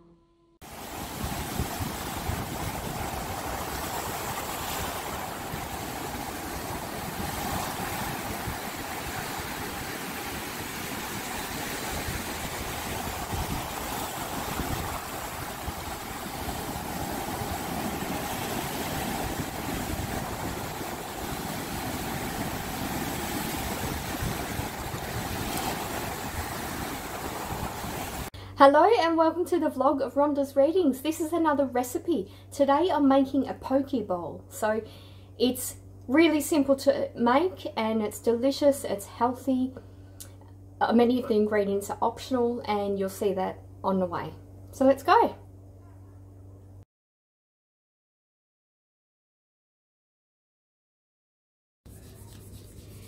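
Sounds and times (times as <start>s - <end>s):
ocean surf breaking: 0.6s - 28.3s
wind rumbling on microphone: 0.7s - 28.3s.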